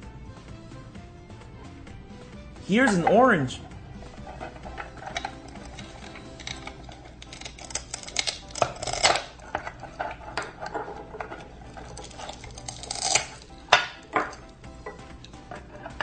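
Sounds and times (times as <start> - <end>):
velcro pulling apart: 6.4 - 9.4, 11.8 - 13.4.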